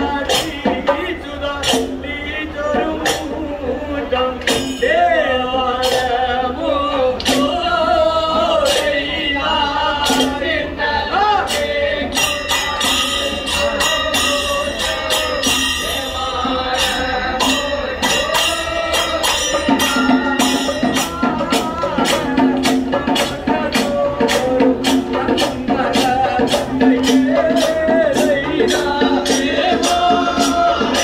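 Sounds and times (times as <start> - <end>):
hand percussion: 0.0 - 31.0
men singing chant-like song: 0.0 - 31.0
metal cymbal strokes: 11.4 - 23.4.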